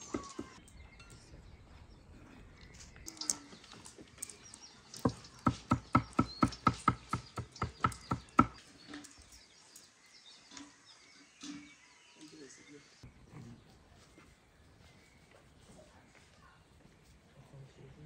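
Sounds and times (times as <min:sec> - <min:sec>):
birds chirping: 0:00.0 - 0:17.2
knife chopping on wooden board: 0:05.0 - 0:08.6.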